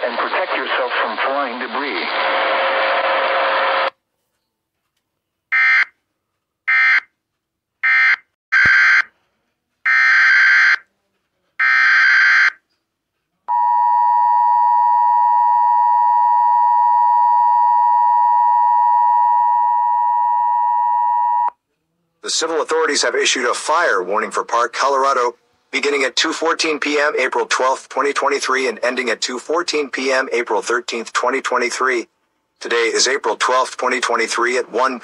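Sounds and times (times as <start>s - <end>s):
noisy radio transmission: 0.0s - 3.9s.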